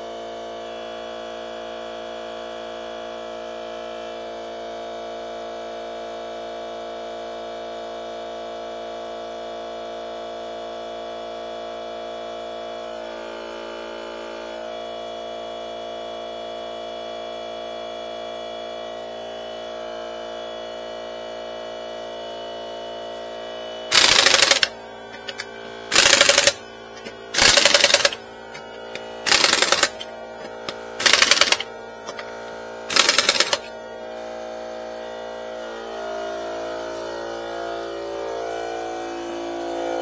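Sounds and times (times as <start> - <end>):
pneumatic impact wrench bursts: 23.9 - 32.2, 32.9 - 33.7
steady hum: 23.9 - 40.0.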